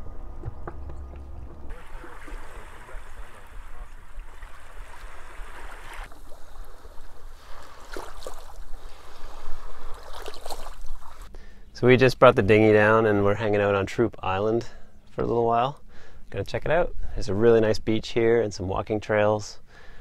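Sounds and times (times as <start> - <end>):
small water splashes: 1.1 - 11.3
small waves lapping on beach: 1.7 - 11.3.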